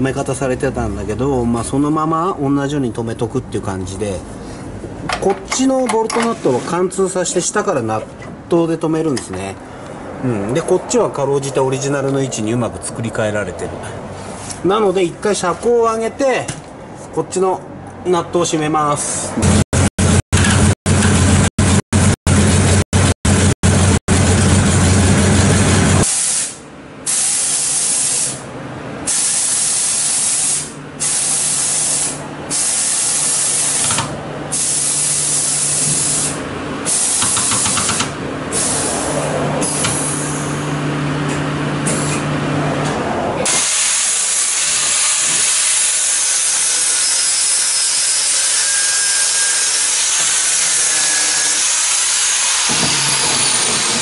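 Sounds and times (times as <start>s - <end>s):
air suspension hissing bursts: 26.0s - 28.4s, 29.0s - 40.6s
angle grinder cutting metal: 43.5s - 54.0s.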